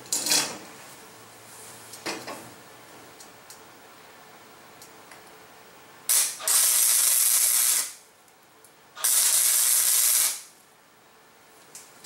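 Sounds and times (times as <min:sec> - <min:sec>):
welder arc sizzling: 0:06.1 - 0:08.0, 0:09.0 - 0:10.6.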